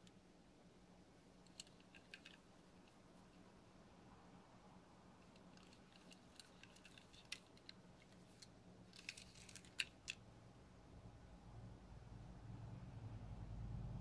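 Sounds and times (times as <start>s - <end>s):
toy car clicking in fingers: 1.4s - 3.0s, 5.3s - 7.8s, 8.4s - 10.2s.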